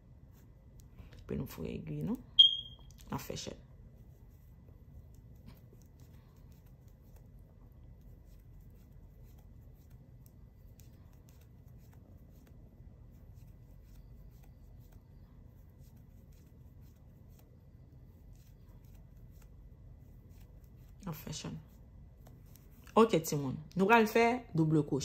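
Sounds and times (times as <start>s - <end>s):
low room hum: 0.0s - 25.0s
crochet hook clicking and yarn rustling: 0.3s - 3.2s.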